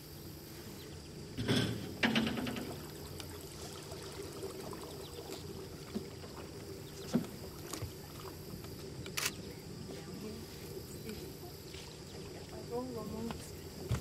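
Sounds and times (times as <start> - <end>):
water splash: 2.3 - 8.5
paddle swishing in water: 2.7 - 9.1.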